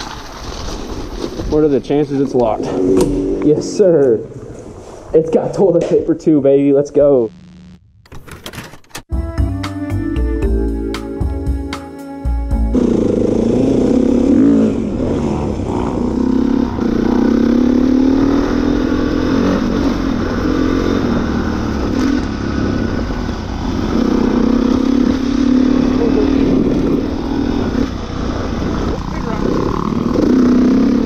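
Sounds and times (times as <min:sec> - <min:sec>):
dirt bike engine accelerating: 0:02.5 - 0:04.2, 0:12.7 - 0:31.0.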